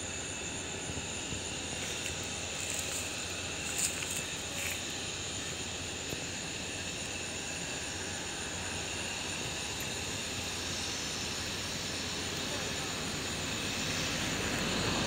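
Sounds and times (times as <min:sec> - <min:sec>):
jet engines humming and hissing: 0:00.0 - 0:15.0.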